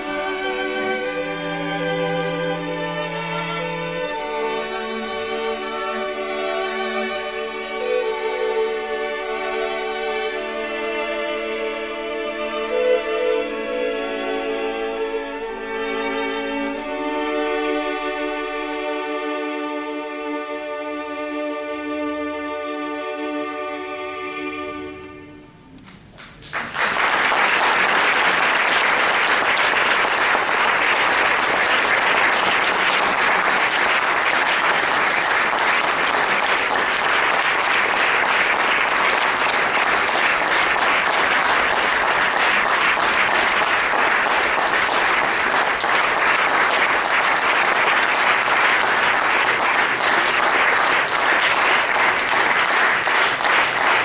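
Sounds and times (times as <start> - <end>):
music with sustained strings: 0.0 - 25.7
audience applauding: 25.8 - 54.0.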